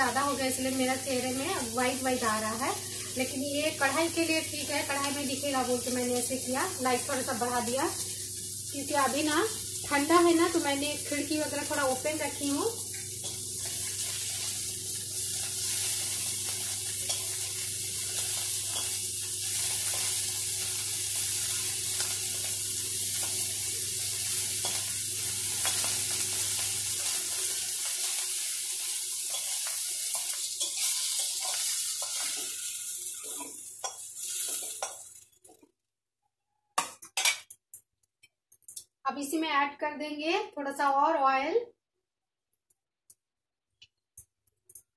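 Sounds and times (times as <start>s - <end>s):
fish sizzling in oil: 0.0s - 35.5s.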